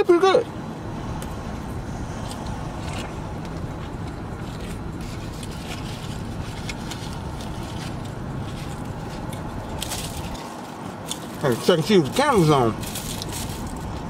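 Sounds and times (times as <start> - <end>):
car cabin rumble: 0.7 - 10.4
chewing and mouth noises: 2.2 - 11.7.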